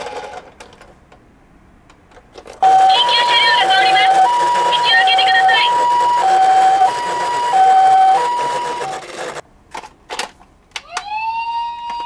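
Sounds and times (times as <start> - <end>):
toy ambulance two-tone siren: 2.6 - 9.4, 10.9 - 12.0
toy siren rising tone: 2.6 - 9.4, 10.8 - 12.0.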